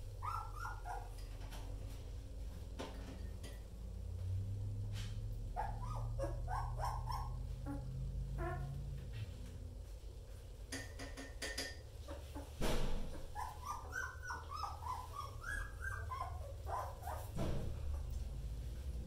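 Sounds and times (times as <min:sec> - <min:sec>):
puppy whimpering yelps: 0:00.1 - 0:01.2, 0:05.6 - 0:08.7, 0:13.1 - 0:17.4.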